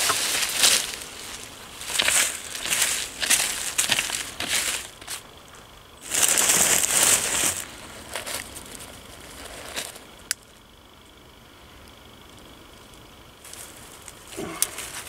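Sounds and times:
plastic bag and foil crinkling: 0.0s - 5.2s, 6.0s - 10.1s.

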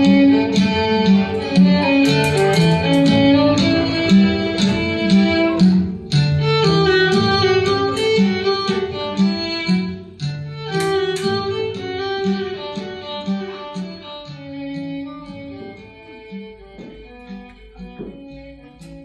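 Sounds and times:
steady bass line: 0.0s - 10.6s
fiddle melody: 0.0s - 19.0s
plucked string accompaniment: 0.0s - 19.0s.

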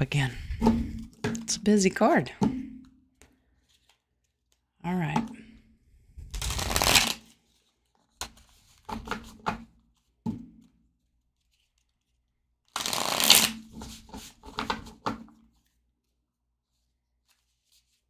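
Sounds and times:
cards riffle-shuffled: 3.1s - 4.6s, 6.3s - 9.3s, 11.4s - 14.7s.

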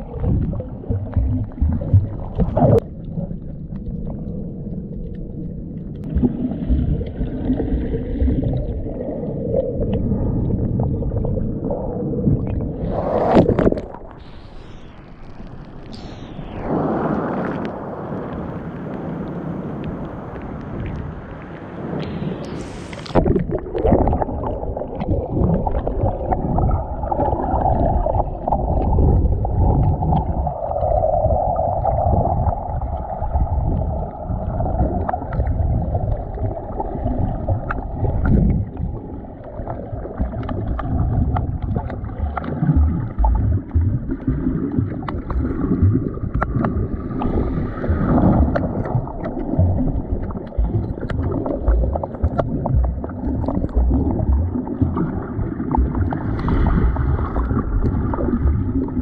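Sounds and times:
muffled underwater rumbling swish: 0.0s - 59.0s
small underwater crackles: 0.0s - 59.0s
surf washing: 12.3s - 59.0s
water splash: 12.4s - 33.0s, 33.6s - 59.0s.

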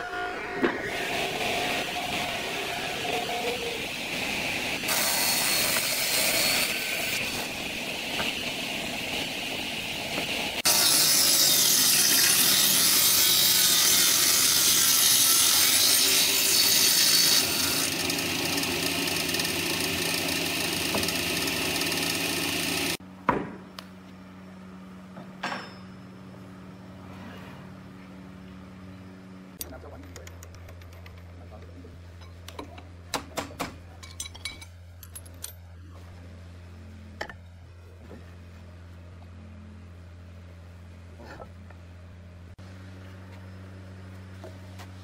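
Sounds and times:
low hum: 0.0s - 4.9s
table saw cutting wood: 0.0s - 8.4s, 10.6s - 23.0s.

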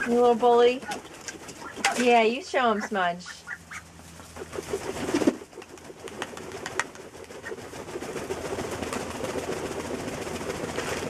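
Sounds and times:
duck flapping wings: 0.0s - 2.1s, 2.8s - 11.0s
ducks shuffling in straw: 0.0s - 5.3s.

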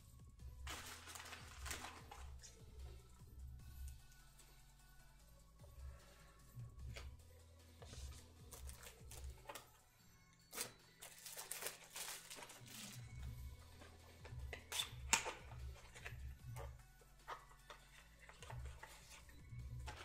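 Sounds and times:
soft background music: 0.0s - 20.0s
trading cards rustling and clicking: 0.6s - 2.6s, 7.8s - 9.8s, 10.5s - 20.0s.

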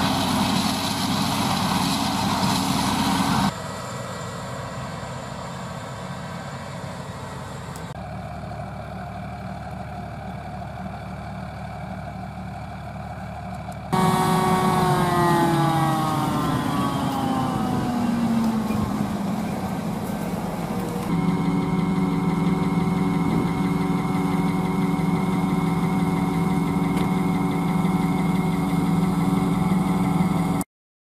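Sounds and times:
low hum: 13.9s - 30.6s
machine whine: 13.9s - 30.6s.

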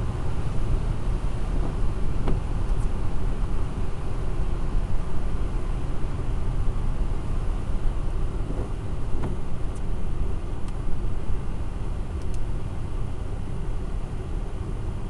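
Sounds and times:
engine and tyre rumble: 0.0s - 15.0s.

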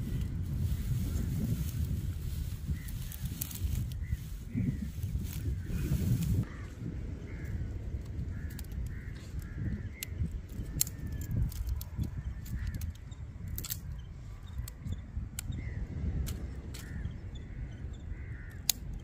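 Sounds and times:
steady low rumble: 0.0s - 19.0s
crows cawing: 6.4s - 11.2s, 16.8s - 18.8s
sharp clicks and snaps: 8.4s - 15.6s.

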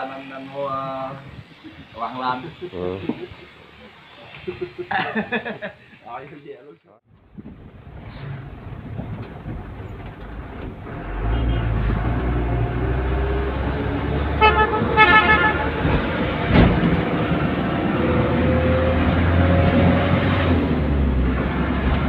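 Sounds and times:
vehicle engine rumble: 7.1s - 22.0s
vehicle horn toots: 11.2s - 12.0s, 14.3s - 15.9s.

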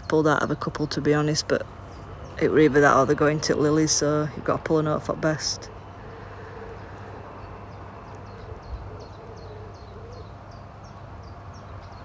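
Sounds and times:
songbird high chirps: 7.3s - 12.0s.

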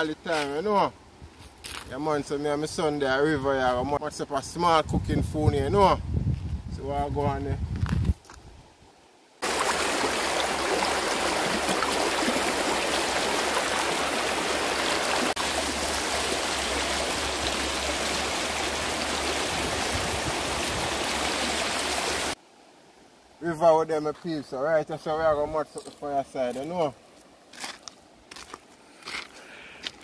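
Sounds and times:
river water flowing: 9.1s - 25.2s, 26.0s - 28.8s.

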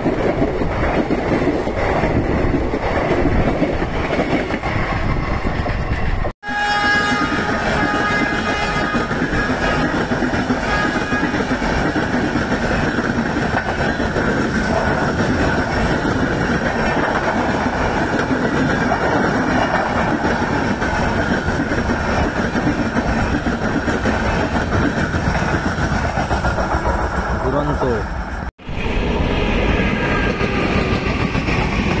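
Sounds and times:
train wheels on rails: 0.0s - 32.0s.

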